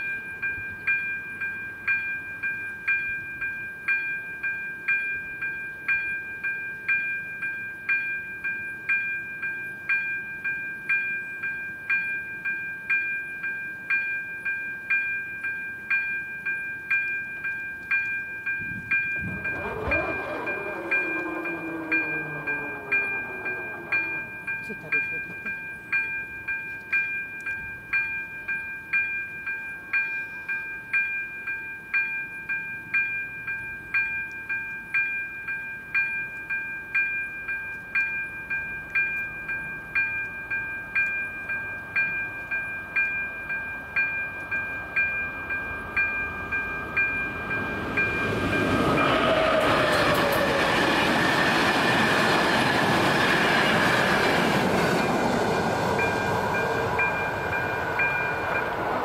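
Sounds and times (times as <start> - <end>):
level-crossing warning bell: 0.0 - 59.0
train wheels rushing on rail: 18.6 - 25.6, 42.0 - 59.0.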